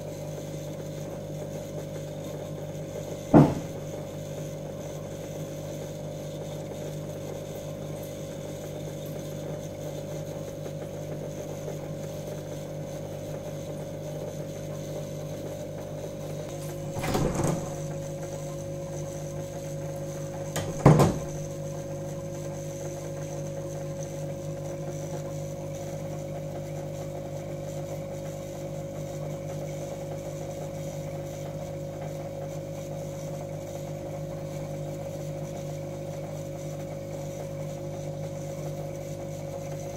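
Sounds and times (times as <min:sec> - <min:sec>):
aquarium pump humming: 0:00.0 - 0:39.9
brief knock: 0:03.3 - 0:03.8, 0:16.5 - 0:17.9, 0:20.6 - 0:21.4.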